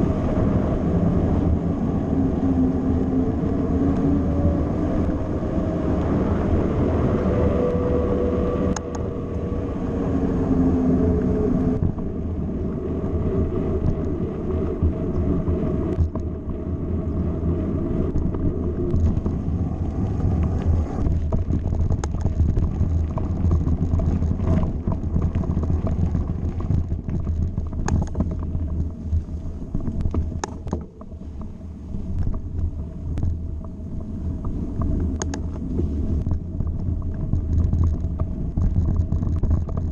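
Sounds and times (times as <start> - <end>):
bike tyres rumbling: 0.0 - 39.9
wind buffeting microphone: 0.0 - 39.9
bike knocks and rattles: 21.0 - 33.7, 36.2 - 39.9.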